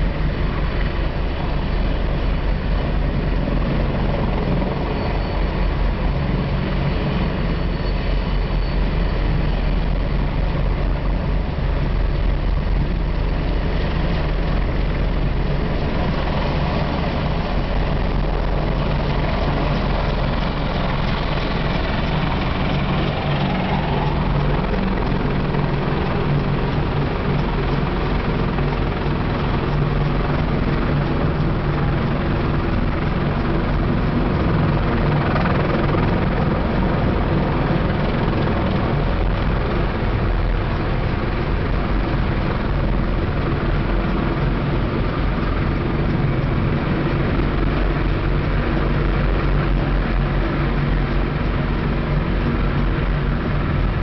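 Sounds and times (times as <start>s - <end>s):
helicopter rotor beat: 0.0s - 54.0s
helicopter turbine engines: 0.0s - 54.0s.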